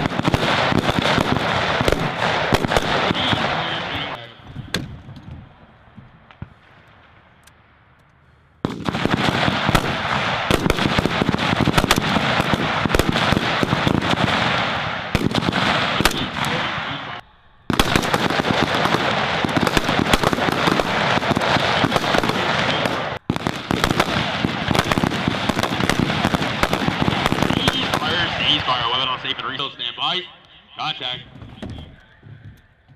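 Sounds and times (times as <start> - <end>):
rifles firing: 0.0 - 5.1, 8.6 - 17.0, 17.7 - 29.0.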